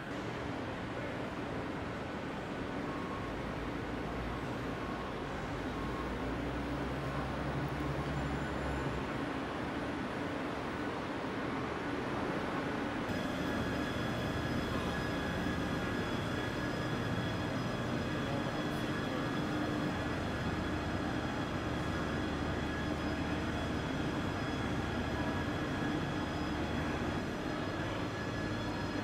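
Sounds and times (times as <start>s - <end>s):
transporter drive humming: 13.1s - 27.2s
high-pitched whining tones: 13.1s - 29.0s.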